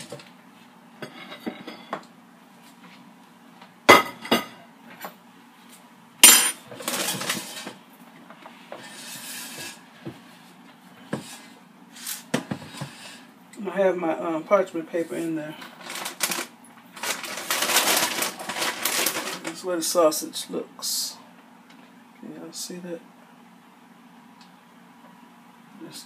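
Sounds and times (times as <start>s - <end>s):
rustling: 15.2s - 19.6s.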